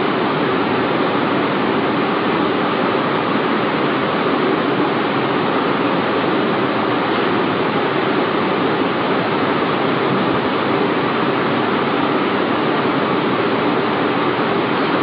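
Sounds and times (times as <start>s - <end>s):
steady rushing noise: 0.0s - 15.0s.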